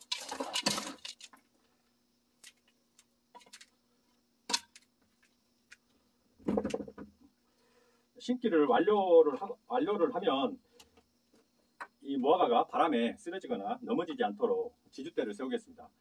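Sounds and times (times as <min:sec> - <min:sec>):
plastic scoop scraping soil: 0:00.0 - 0:01.4.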